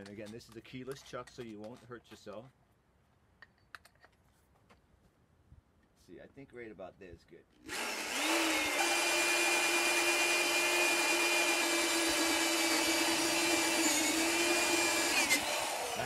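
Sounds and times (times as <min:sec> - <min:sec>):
electric drill boring into wood: 0:07.6 - 0:16.0.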